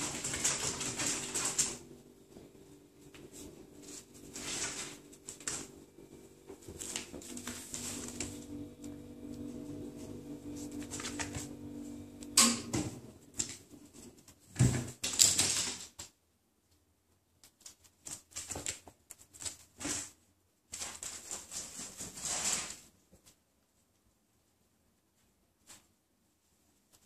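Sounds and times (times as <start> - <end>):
steady low hum: 0.0 - 13.3.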